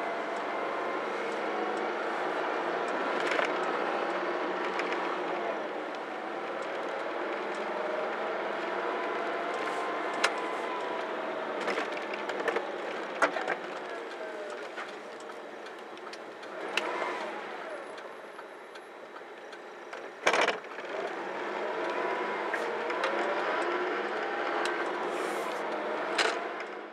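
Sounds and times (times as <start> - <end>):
scattered clicks and knocks: 18.4 - 20.9.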